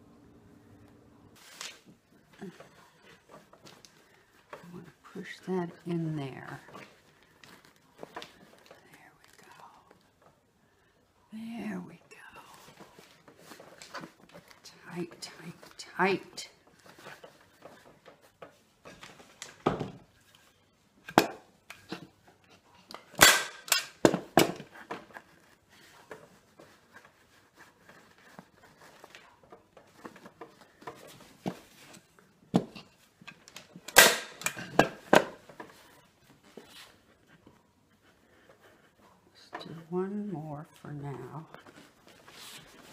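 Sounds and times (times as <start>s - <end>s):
handling noises: 12.2s - 42.9s.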